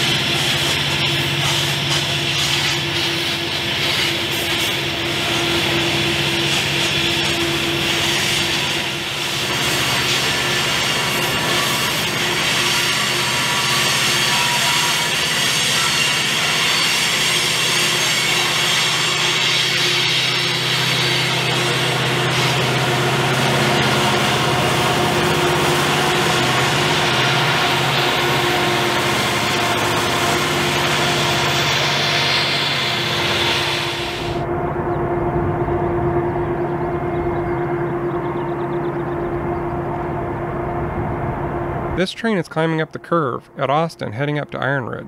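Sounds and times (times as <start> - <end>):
diesel locomotive engines working: 0.0 - 45.0
rumble of train wheels: 0.0 - 45.0
high-pitched wheel squeal: 11.2 - 41.9.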